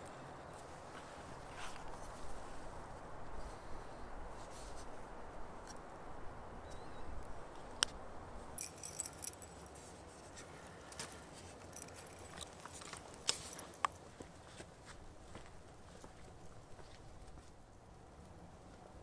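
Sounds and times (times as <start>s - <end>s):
light metallic jingling: 8.5s - 14.4s.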